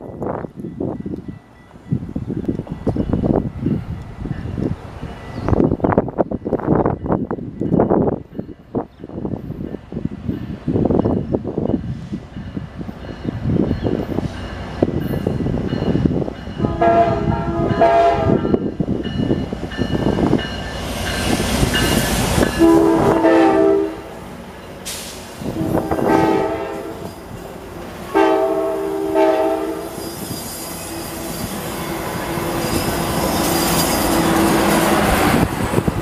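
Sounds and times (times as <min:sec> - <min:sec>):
wind buffeting microphone: 0:00.0 - 0:24.6, 0:25.2 - 0:27.5, 0:34.1 - 0:36.0
diesel locomotive passing: 0:00.0 - 0:36.0
train air horn blasts: 0:16.6 - 0:18.6, 0:22.5 - 0:24.2, 0:24.9 - 0:27.2, 0:28.1 - 0:30.3.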